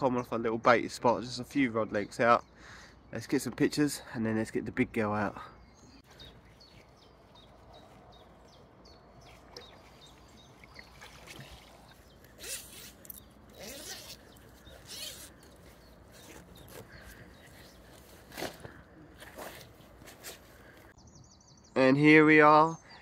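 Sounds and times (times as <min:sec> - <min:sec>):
wet mesh sling rustling: 0:06.2 - 0:20.8.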